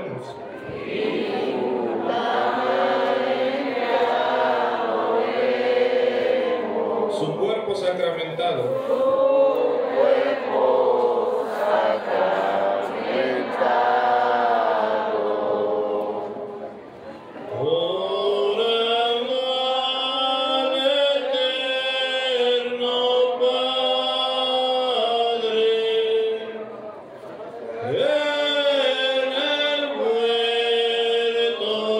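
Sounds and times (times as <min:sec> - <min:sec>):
voices chanting a hymn: 0:00.0 - 0:07.8, 0:08.5 - 0:26.8, 0:27.8 - 0:31.9.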